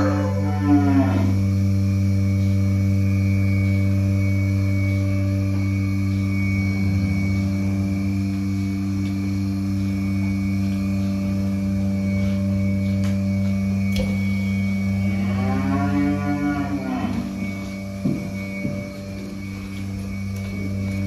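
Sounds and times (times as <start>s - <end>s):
cow mooing: 0.0s - 1.5s, 6.7s - 7.8s, 14.8s - 17.8s
milking machine vacuum pump hum: 0.0s - 21.0s.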